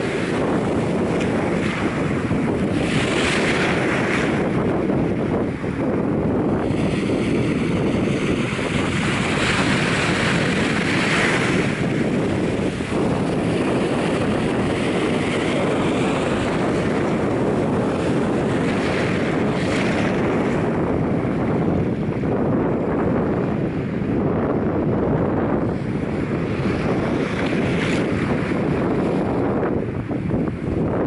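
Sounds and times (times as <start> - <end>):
wind buffeting microphone: 0.0 - 31.0
small waves breaking on sand: 6.5 - 21.5.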